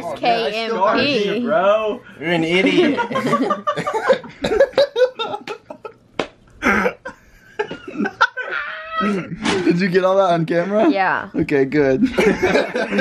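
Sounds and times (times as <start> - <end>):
people laughing and giggling: 2.5 - 6.0, 6.6 - 9.7, 12.0 - 13.0.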